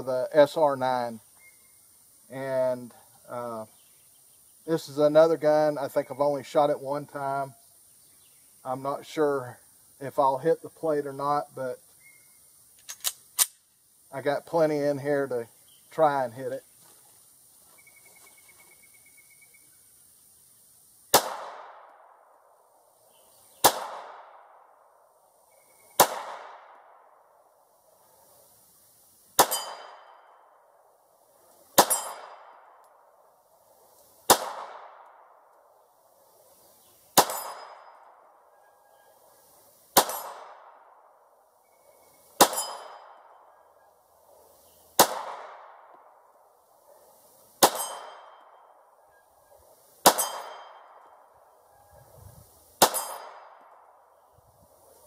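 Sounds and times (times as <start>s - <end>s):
pistol shots with echo: 21.1s - 22.1s, 23.6s - 24.8s, 26.0s - 27.2s, 29.4s - 30.2s, 31.8s - 32.8s, 34.3s - 35.4s, 37.2s - 38.1s, 40.0s - 40.9s, 42.4s - 43.4s, 45.0s - 45.9s, 47.6s - 48.5s, 50.0s - 51.1s, 52.8s - 54.0s
steel target plate ringing: 29.4s - 30.2s, 31.8s - 32.4s, 37.2s - 38.0s, 42.4s - 43.2s, 47.6s - 48.5s, 50.1s - 51.0s, 52.8s - 53.6s.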